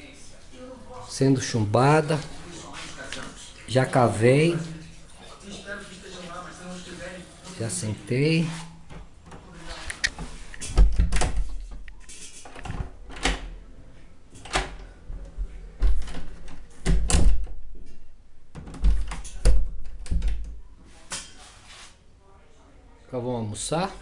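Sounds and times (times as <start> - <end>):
door thudding against frame: 10.7 - 11.5, 15.8 - 17.6, 18.6 - 20.5.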